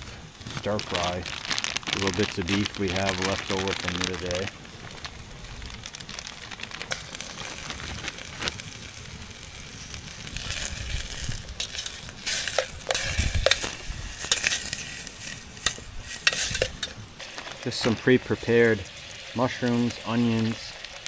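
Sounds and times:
meat sizzling in a metal pot: 0:00.0 - 0:21.0
clinks and scrapes of stirring: 0:11.6 - 0:17.7.

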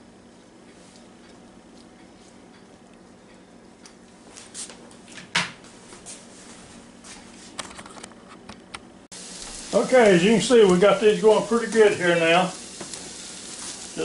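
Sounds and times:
steady low hum: 0:00.0 - 0:14.0
vegetables frying with hiss: 0:09.1 - 0:14.0.

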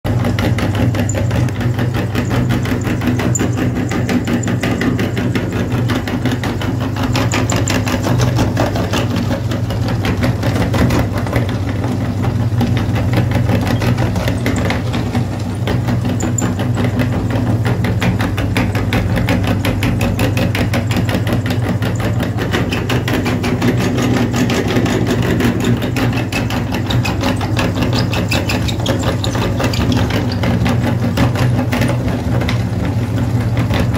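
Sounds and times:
meat grinder motor humming: 0:00.1 - 0:33.9
gritty crackle of chalk grinding: 0:00.7 - 0:10.0.

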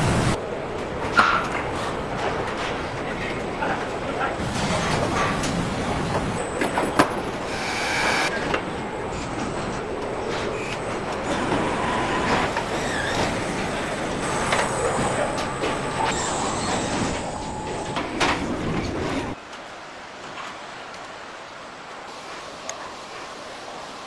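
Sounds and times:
assembly line machinery din: 0:04.4 - 0:08.4, 0:11.3 - 0:19.4.

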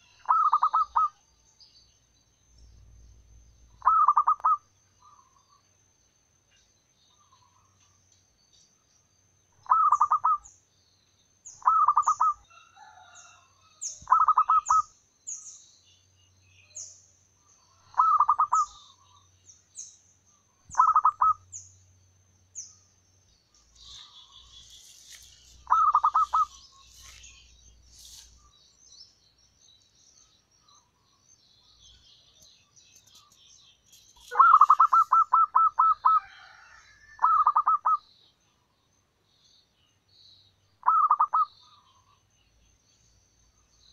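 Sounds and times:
small birds twittering: 0:00.0 - 0:05.8, 0:06.4 - 0:43.9
dove cooing: 0:00.2 - 0:01.2, 0:03.8 - 0:04.6, 0:09.6 - 0:10.4, 0:14.1 - 0:14.8, 0:17.8 - 0:18.8, 0:20.7 - 0:21.4, 0:25.6 - 0:26.6, 0:34.3 - 0:38.0, 0:40.8 - 0:41.5
high repeated bird chirps: 0:00.2 - 0:01.2, 0:03.7 - 0:05.4, 0:09.6 - 0:10.6, 0:11.5 - 0:12.4, 0:13.9 - 0:15.5, 0:17.9 - 0:19.3, 0:20.6 - 0:21.8, 0:23.6 - 0:29.2, 0:31.9 - 0:36.2, 0:37.2 - 0:38.2, 0:40.8 - 0:42.2.

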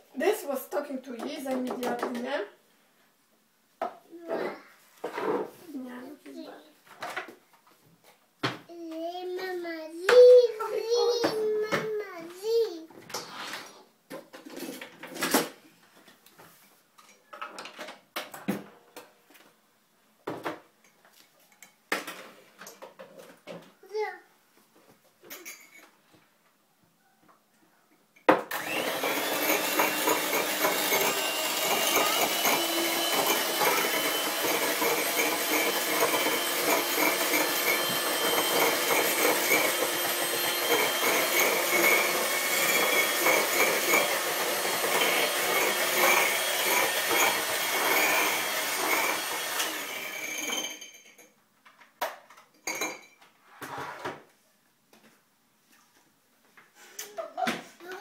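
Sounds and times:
kitchen appliance motor grinding: 0:28.5 - 0:51.1.

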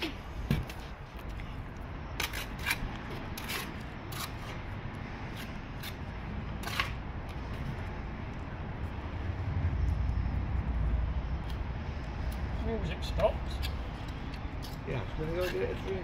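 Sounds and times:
brick and mortar scraping: 0:02.1 - 0:07.8.

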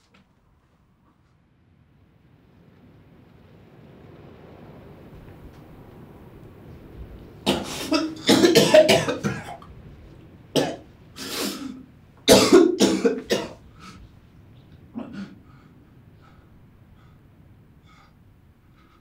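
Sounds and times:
man coughing: 0:07.5 - 0:09.6, 0:12.3 - 0:13.6, 0:15.0 - 0:15.4.

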